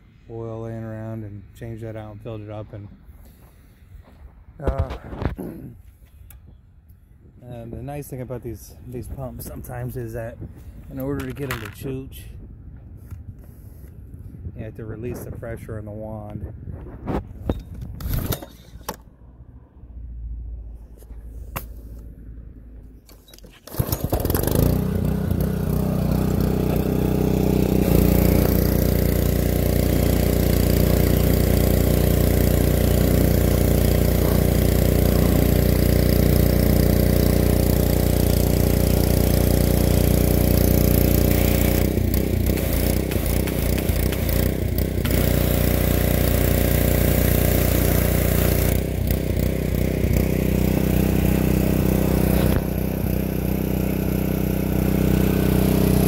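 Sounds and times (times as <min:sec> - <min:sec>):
pressure washer engine running: 0:23.6 - 0:56.0
water spraying under pressure: 0:24.4 - 0:49.9.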